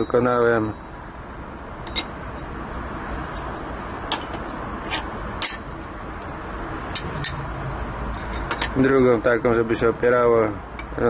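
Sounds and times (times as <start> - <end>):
metal rings clinking: 0.0 - 0.9, 1.8 - 6.0, 6.6 - 7.5, 8.1 - 9.6, 10.2 - 11.0.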